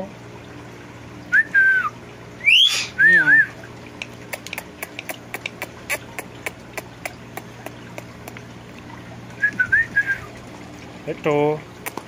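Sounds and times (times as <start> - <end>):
bird warbling whistle: 1.3 - 3.6, 9.4 - 10.3.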